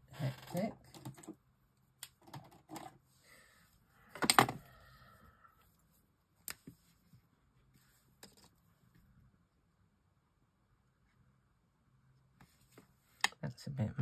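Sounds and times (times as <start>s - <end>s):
marker pens clattering: 0.3s - 1.4s.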